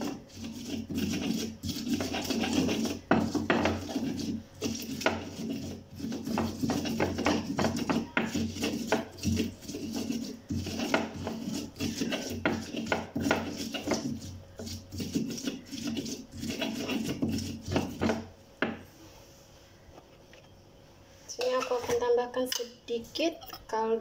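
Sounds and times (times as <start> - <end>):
stone pestle grinding in mortar: 0.0 - 18.8.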